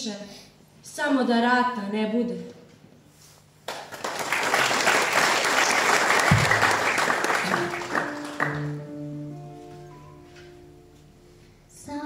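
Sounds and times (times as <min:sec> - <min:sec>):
audience applauding: 0:03.7 - 0:09.0
instrument playing held notes: 0:07.4 - 0:11.6.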